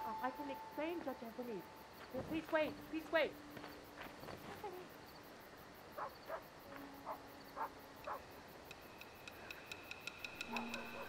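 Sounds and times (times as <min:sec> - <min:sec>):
crickets chirping: 0:00.0 - 0:11.0
dog barking: 0:06.0 - 0:06.4, 0:07.0 - 0:08.2
quick ticks: 0:08.0 - 0:11.0
thin high ringing note: 0:08.9 - 0:11.0.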